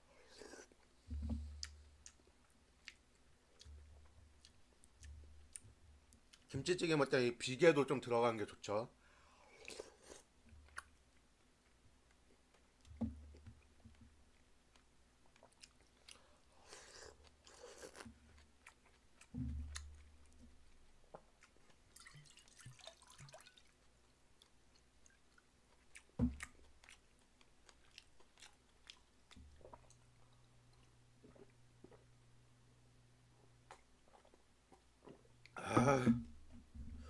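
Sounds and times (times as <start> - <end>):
faint chewing: 0.1 - 6.6, 9.4 - 32.2, 33.3 - 35.6
liquid pouring into metal bowl: 22.0 - 23.6.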